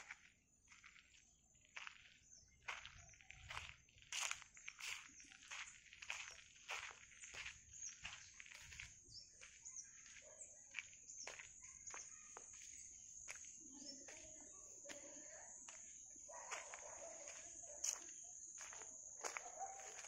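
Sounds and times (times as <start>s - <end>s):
footsteps on gravel: 0.0s - 20.0s
bird chirps: 1.8s - 14.8s.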